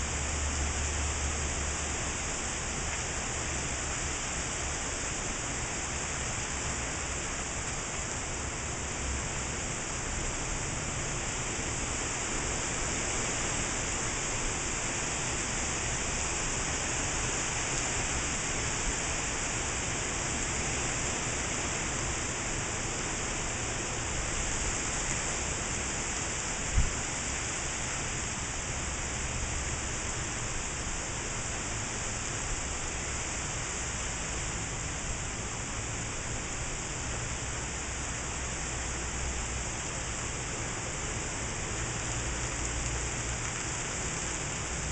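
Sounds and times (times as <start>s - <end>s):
heavy rain: 0.0s - 44.9s.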